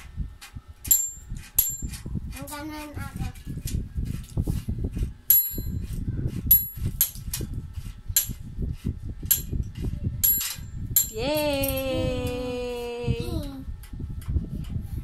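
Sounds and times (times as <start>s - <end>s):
bike knocking and rattling: 0.0s - 11.2s.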